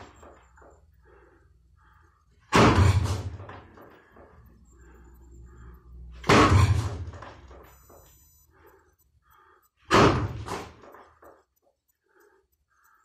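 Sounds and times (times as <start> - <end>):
punches thudding on padded post: 2.5 - 3.4.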